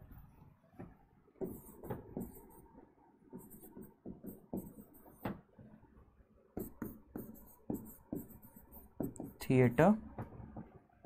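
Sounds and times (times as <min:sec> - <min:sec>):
stylus tapping and scratching screen: 0:01.4 - 0:05.4, 0:06.6 - 0:10.7.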